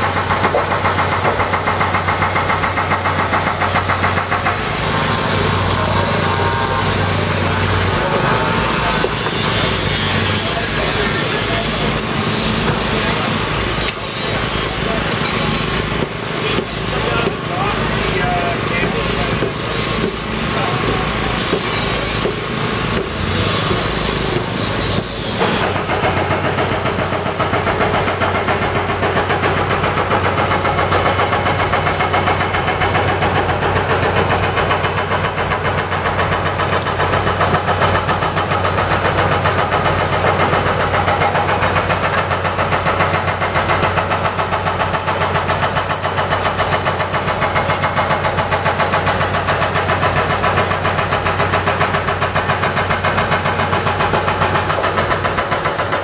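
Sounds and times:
machinery engine throbbing: 0:00.0 - 0:14.0.

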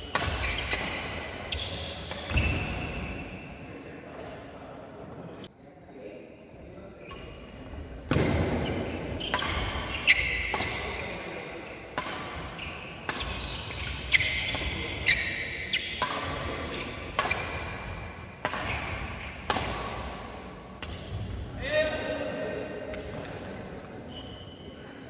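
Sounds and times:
rackets hitting shuttlecock echoing: 0:00.0 - 0:03.4, 0:07.9 - 0:21.6, 0:22.8 - 0:23.9.

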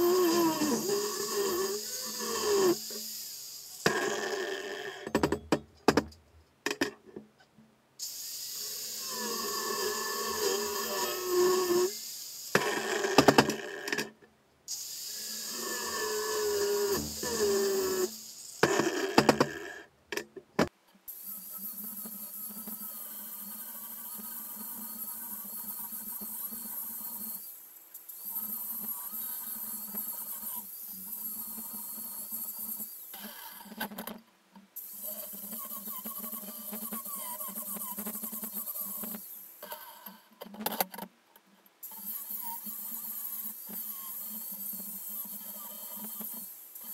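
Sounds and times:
angle grinder grinding steel: 0:00.0 - 0:05.2, 0:08.1 - 0:13.9, 0:14.8 - 0:19.6, 0:41.9 - 0:46.9
sharp metallic knocks: 0:05.1 - 0:07.0.

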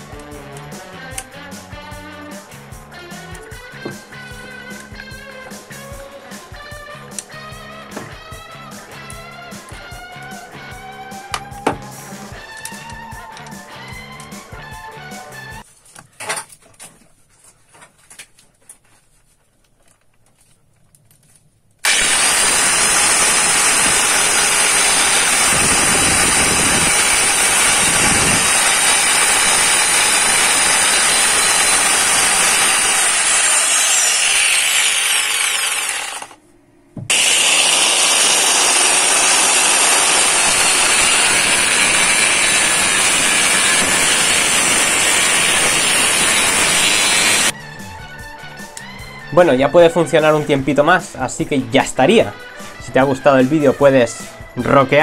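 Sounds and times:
angle grinder whining: 0:21.8 - 0:47.6.

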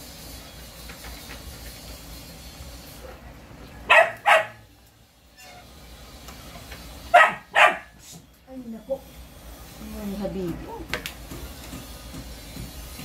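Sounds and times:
dog barking: 0:03.9 - 0:04.7, 0:07.1 - 0:08.0.

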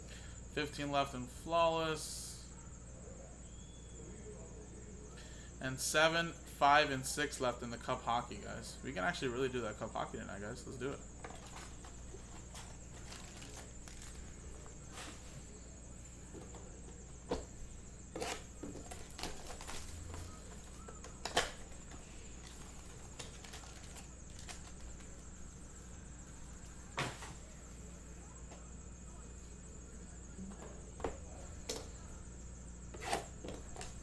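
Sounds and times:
faint high whine: 0:00.0 - 0:34.0
steady low hum: 0:00.0 - 0:34.0
cards clicking and rustling: 0:11.2 - 0:14.3, 0:18.2 - 0:25.2.

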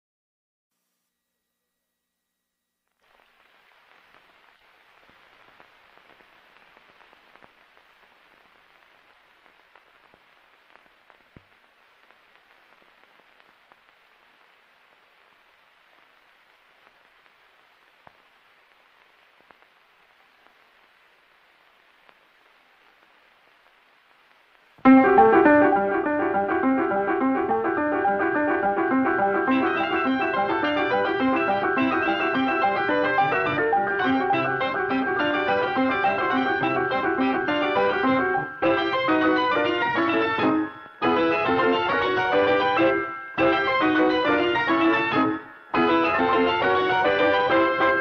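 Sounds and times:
film soundtrack hiss: 0:00.7 - 0:48.0
film surface clicks and pops: 0:02.9 - 0:20.8.

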